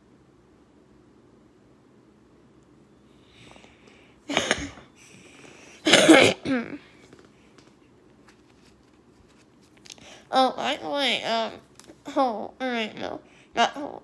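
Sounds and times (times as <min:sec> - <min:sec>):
person coughing: 0:04.3 - 0:04.9, 0:05.8 - 0:06.9.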